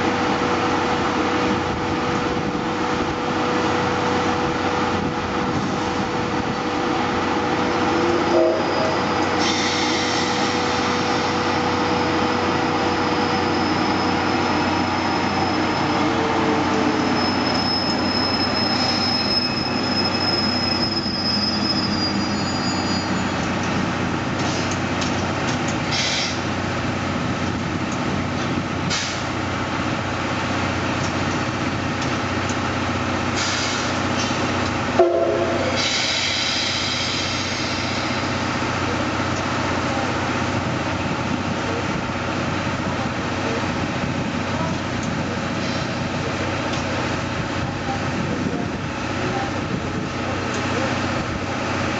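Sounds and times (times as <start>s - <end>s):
train wheels rolling on rails: 0.0s - 51.9s
high wheel squeal: 7.9s - 23.6s.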